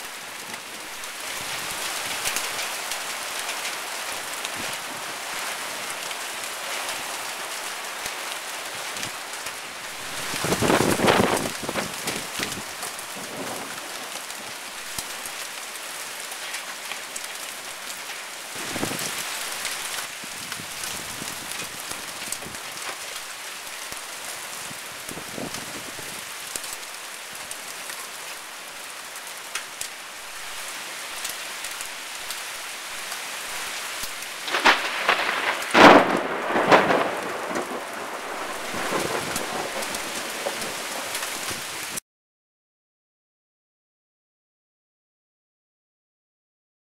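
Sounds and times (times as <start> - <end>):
heavy rain falling: 0.0 - 42.0
thunder: 10.2 - 12.6, 34.4 - 41.2.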